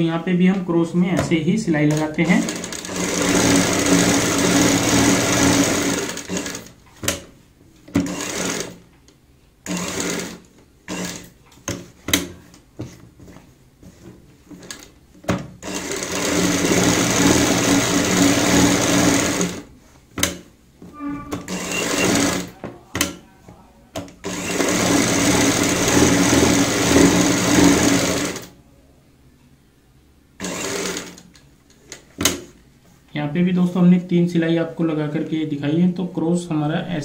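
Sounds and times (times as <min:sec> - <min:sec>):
sewing machine running: 0:01.9 - 0:06.8, 0:08.0 - 0:08.8, 0:09.6 - 0:11.3, 0:15.6 - 0:19.7, 0:21.5 - 0:22.6, 0:24.2 - 0:28.5, 0:30.4 - 0:31.2.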